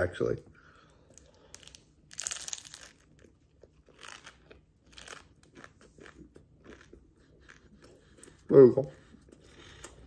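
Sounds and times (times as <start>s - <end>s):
chewing crunches: 1.2s - 8.5s
crunching bite into pastry: 1.5s - 7.6s.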